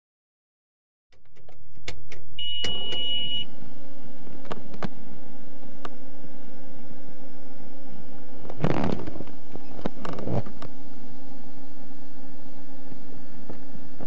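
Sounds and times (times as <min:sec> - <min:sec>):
electrical hum: 0:01.2 - 0:14.0
switch clicks: 0:01.3 - 0:03.2
high steady beep: 0:02.4 - 0:03.5.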